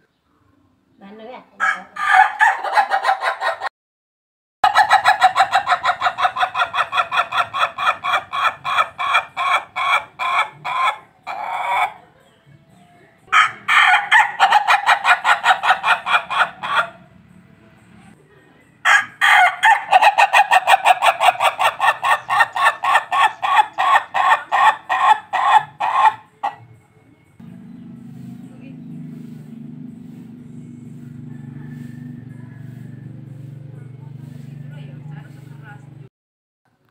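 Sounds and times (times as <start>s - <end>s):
rooster crowing like laughter: 1.6s - 3.7s, 4.6s - 9.2s, 13.4s - 16.9s, 18.9s - 26.2s.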